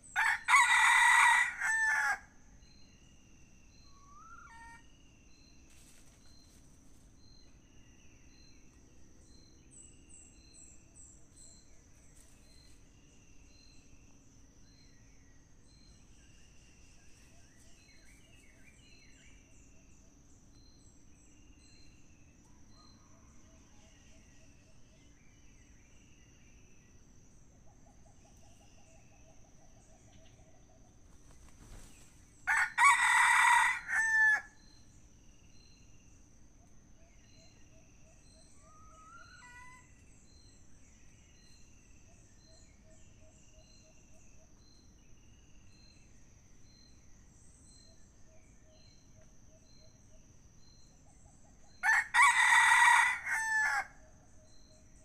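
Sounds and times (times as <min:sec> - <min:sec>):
rooster crowing: 0:00.1 - 0:02.3, 0:32.4 - 0:34.6, 0:51.8 - 0:54.0.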